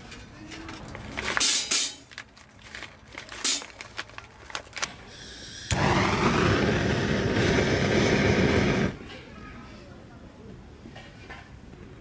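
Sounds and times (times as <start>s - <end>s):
gas torch flame hissing: 5.1s - 9.0s.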